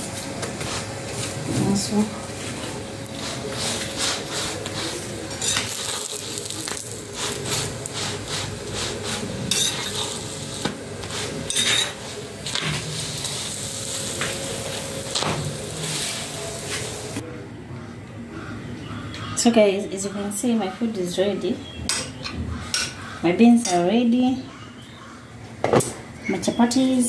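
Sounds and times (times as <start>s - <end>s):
flatbread sizzling in oil: 3.1s - 17.2s
metal spoon scraping pan: 5.4s - 6.2s, 7.2s - 13.5s.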